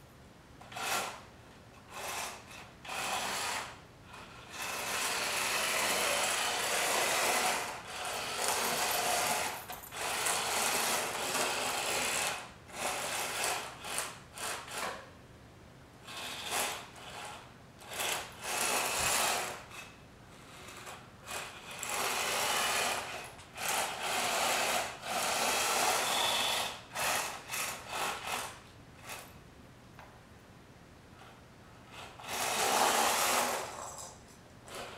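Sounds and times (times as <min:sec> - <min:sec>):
electric motors whirring: 0:23.6 - 0:28.4.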